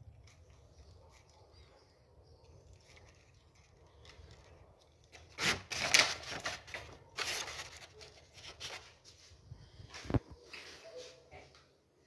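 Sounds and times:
hands rustling wires and paper: 0.0 - 11.5.

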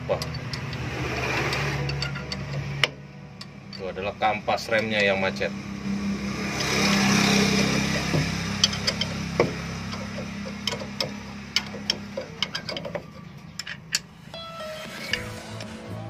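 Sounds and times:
steel bolts clinking on metal: 0.0 - 4.1, 8.6 - 9.2, 9.9 - 14.2.

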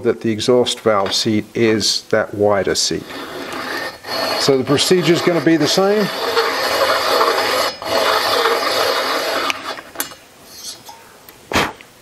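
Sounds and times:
valve seat cutter scraping metal: 2.8 - 10.8.

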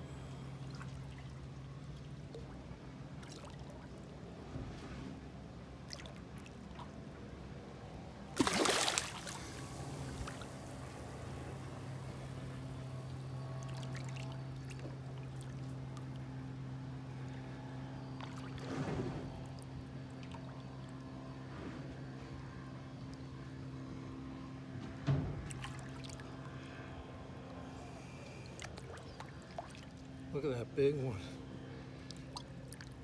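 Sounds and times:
low motor hum: 0.0 - 33.0
water splashing: 8.4 - 10.7.

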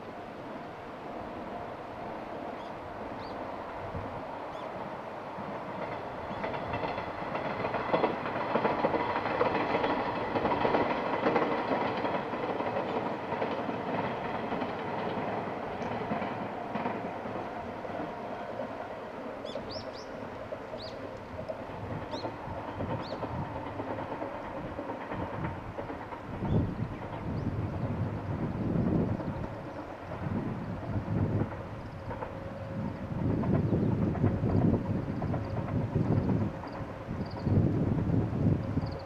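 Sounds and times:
train wheels clacking over rails: 2.6 - 39.0.

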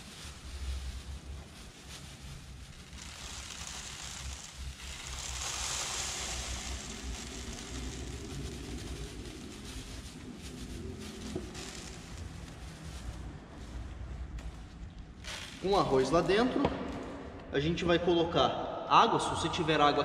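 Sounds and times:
rice grains pouring into plastic: 0.0 - 14.4, 15.1 - 16.5.

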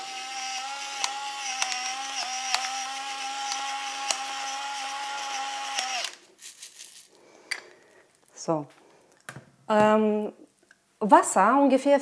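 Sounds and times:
electric pepper mill grinding: 0.0 - 7.0
peppercorns cracking: 5.9 - 8.4.

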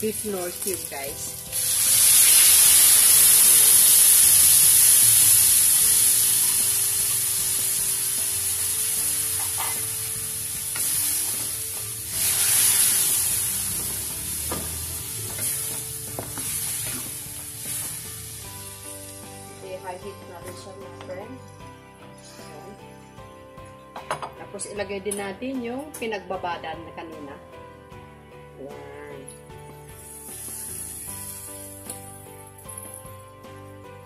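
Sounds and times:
meat sizzling in a wok: 0.0 - 19.8, 29.9 - 33.0.

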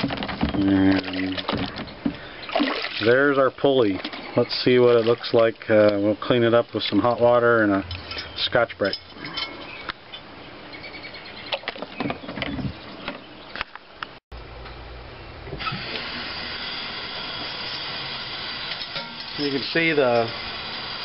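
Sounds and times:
small knocks and splashes: 0.0 - 6.0.

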